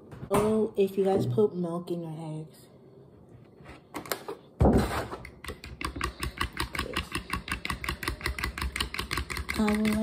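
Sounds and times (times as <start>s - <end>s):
whisk clicking against bowl: 5.3s - 10.0s.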